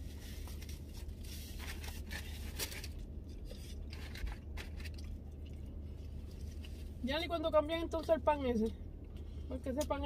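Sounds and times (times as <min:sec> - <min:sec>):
rustling and handling noises: 0:00.0 - 0:07.0
low steady hum: 0:00.0 - 0:10.0.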